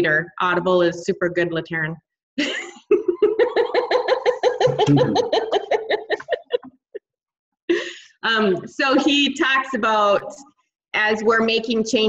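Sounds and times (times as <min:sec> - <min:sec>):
woman laughing: 0:02.4 - 0:07.0, 0:07.7 - 0:09.4.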